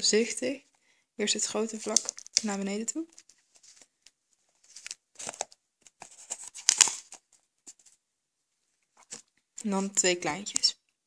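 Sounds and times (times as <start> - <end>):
duct tape crinkling: 1.8 - 2.5, 4.6 - 7.4.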